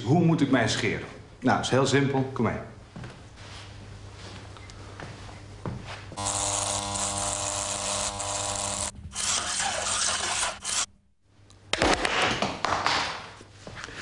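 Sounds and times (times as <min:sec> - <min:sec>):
small electric motor buzzing: 0:06.2 - 0:10.9.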